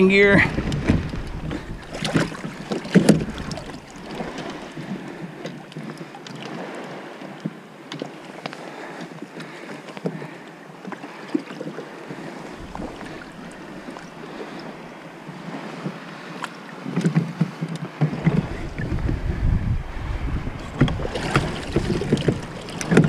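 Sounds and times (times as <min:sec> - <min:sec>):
water lapping against kayak hull: 0:00.0 - 0:23.0
low rumble: 0:18.4 - 0:22.5.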